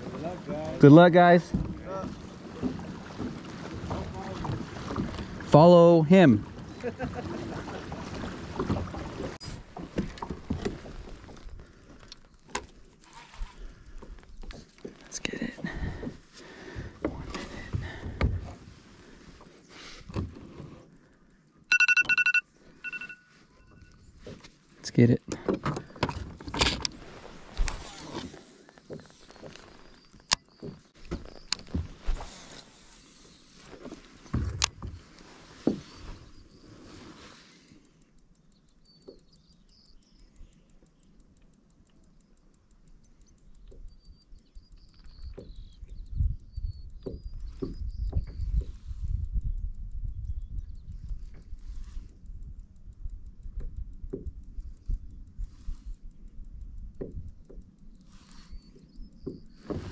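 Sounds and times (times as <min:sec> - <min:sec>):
water lapping against hull: 0:00.0 - 0:21.4, 0:22.6 - 0:40.9, 0:57.0 - 0:59.9
fishing gear clicks and knocks: 0:08.6 - 0:23.2, 0:23.8 - 0:35.2
fishing reel clicking: 0:37.7 - 0:47.0, 0:48.8 - 0:59.5.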